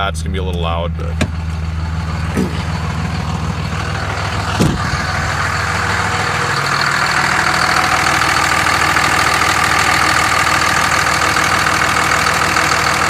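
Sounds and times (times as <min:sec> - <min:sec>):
diesel engine idling: 0:00.0 - 0:13.0
short engine knocks: 0:04.5 - 0:05.2.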